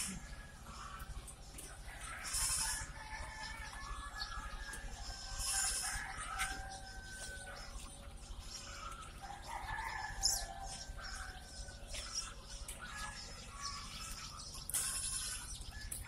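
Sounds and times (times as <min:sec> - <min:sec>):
baby chicks peeping: 0:00.0 - 0:16.0.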